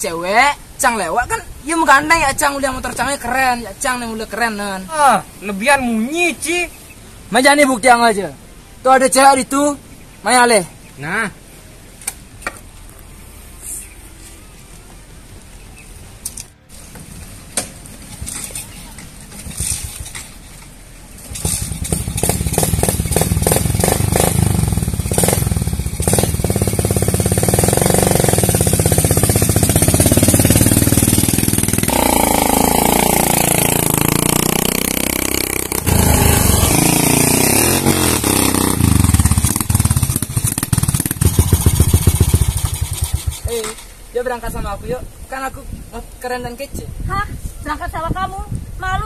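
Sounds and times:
motorcycle revving: 21.1s - 43.9s
motorcycle riding past: 21.2s - 43.6s.

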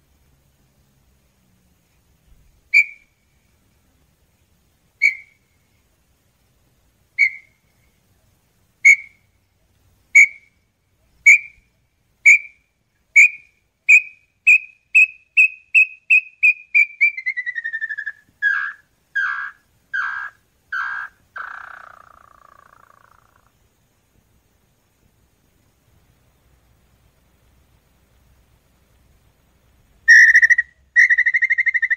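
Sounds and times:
bird whistled song: 2.7s - 3.2s, 5.0s - 5.6s, 7.2s - 8.0s, 8.8s - 9.3s, 10.1s - 10.6s, 11.2s - 23.4s, 30.0s - 31.9s.

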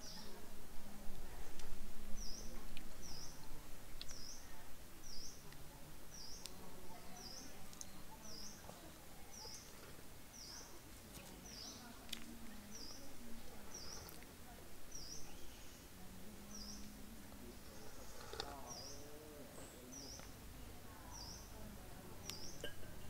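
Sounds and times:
small bird chirping: 2.2s - 3.4s, 4.0s - 5.5s, 6.1s - 14.3s, 14.9s - 20.4s, 21.0s - 21.6s, 22.2s - 22.8s.

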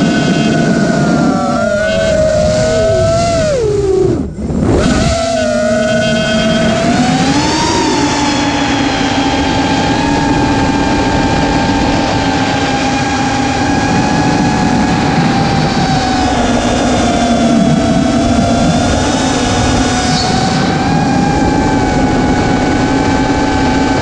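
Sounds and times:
rush of air: 0.0s - 5.8s
drone motors whining: 0.0s - 24.0s.

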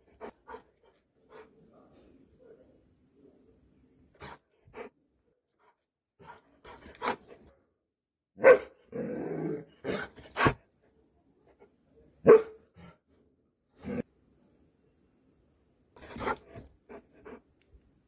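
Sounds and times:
dog barking: 8.4s - 8.8s, 12.2s - 12.6s.

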